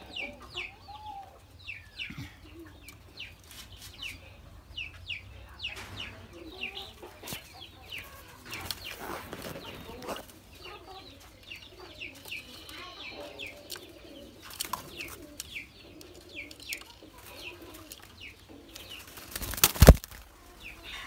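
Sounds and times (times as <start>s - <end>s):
doves cooing: 6.4s - 21.0s.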